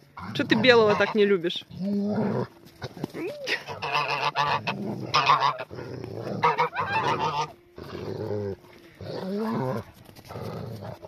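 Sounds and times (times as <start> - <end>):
goose honking: 0.3 - 1.6, 3.5 - 7.6.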